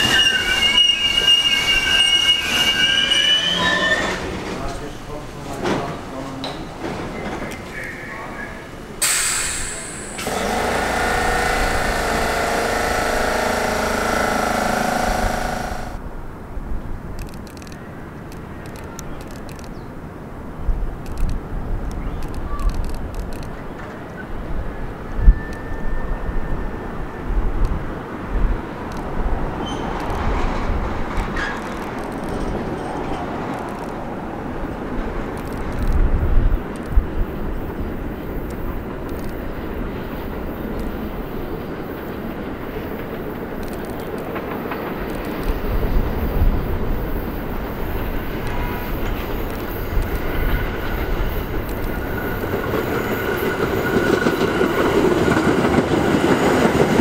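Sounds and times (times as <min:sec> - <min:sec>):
wheel squeal: 0:00.0 - 0:04.4, 0:09.0 - 0:16.0, 0:29.6 - 0:30.1
train wheels rumbling on rail: 0:00.0 - 0:16.1, 0:20.8 - 0:57.0.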